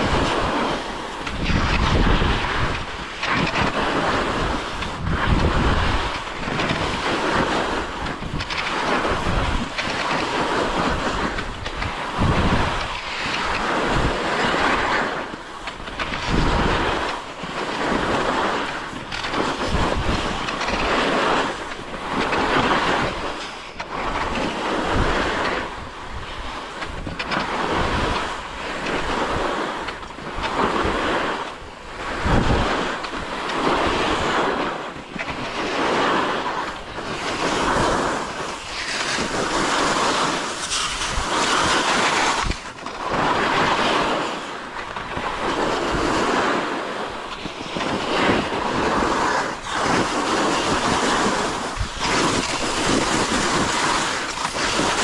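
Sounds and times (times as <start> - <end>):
skis scraping over snow: 0.0 - 55.0.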